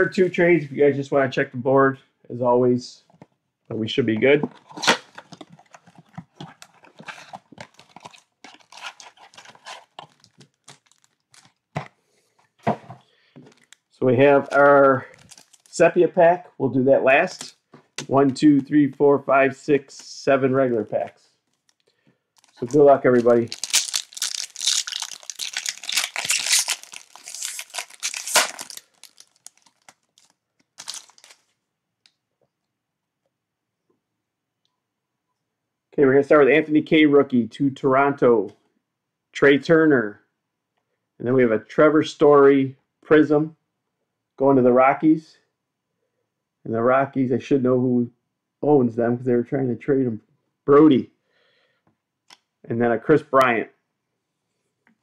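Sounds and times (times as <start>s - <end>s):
packaging crinkling: 4.6s - 11.9s, 13.4s - 15.8s, 20.8s - 31.6s.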